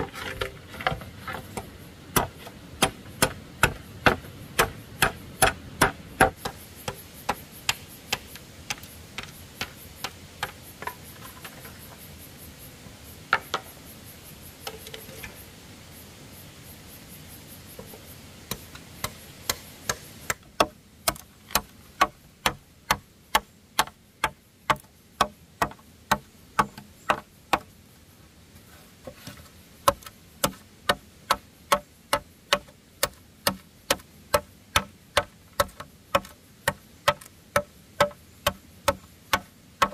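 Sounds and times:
machete chopping bamboo: 0:01.5 - 0:08.8, 0:18.5 - 0:27.7, 0:29.8 - 0:39.9.

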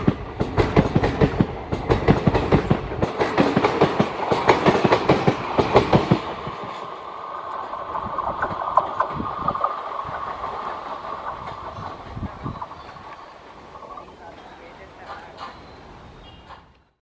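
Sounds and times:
train wheels clicking over rail joints: 0:00.0 - 0:17.0.

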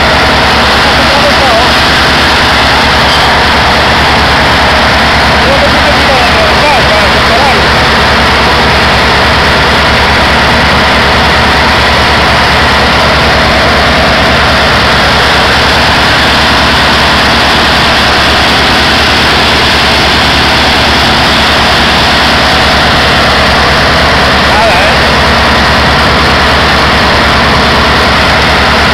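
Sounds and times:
diesel engine running hard: 0:00.0 - 0:28.9
propeller wash churning: 0:00.0 - 0:28.9.

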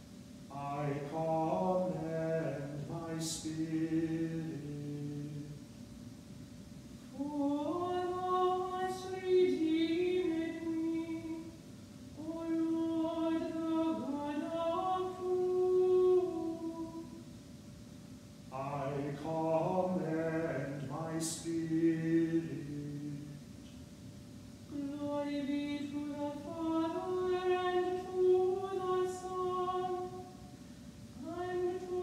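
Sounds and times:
man singing plainchant: 0:00.5 - 0:05.6, 0:18.5 - 0:23.4
woman singing plainchant: 0:00.5 - 0:05.6, 0:07.1 - 0:11.6, 0:12.2 - 0:17.2, 0:18.5 - 0:23.3, 0:24.7 - 0:30.5, 0:31.2 - 0:32.0.

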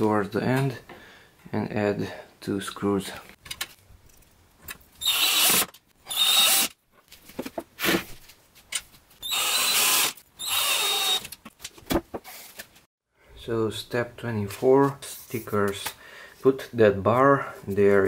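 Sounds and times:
cordless drill driving screws: 0:05.0 - 0:06.7, 0:09.2 - 0:11.4.

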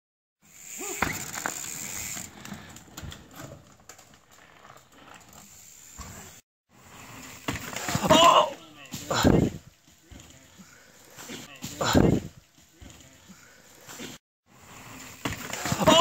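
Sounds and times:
bike tyre noise on trail: 0:00.4 - 0:11.6, 0:12.4 - 0:16.0
bike knocking and rattling: 0:00.6 - 0:06.4, 0:07.3 - 0:10.6, 0:15.0 - 0:16.0.

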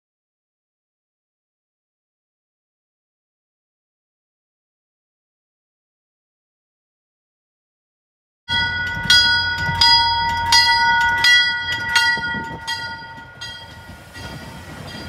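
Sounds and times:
train bell ringing: 0:08.5 - 0:15.0
train coaches rumbling on track: 0:08.5 - 0:15.0.

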